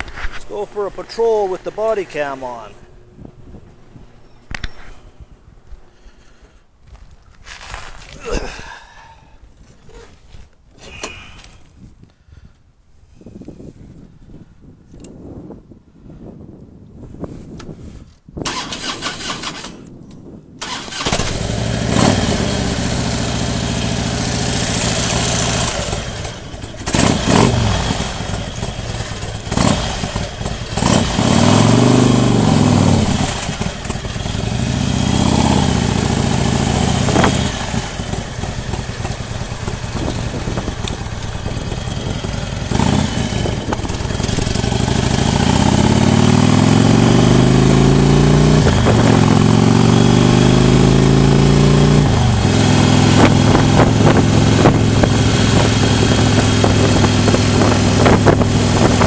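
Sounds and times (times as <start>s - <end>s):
motorcycle engine revving: 20.6s - 59.0s.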